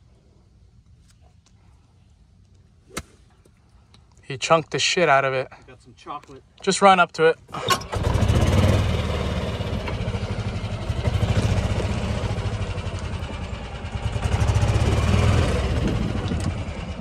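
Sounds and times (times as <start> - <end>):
golf cart engine running: 7.4 - 17.0.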